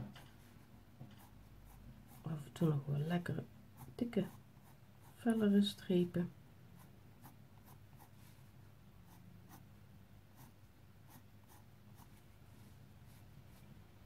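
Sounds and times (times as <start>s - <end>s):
pencil scratching on paper: 1.1s - 2.6s, 6.8s - 8.3s.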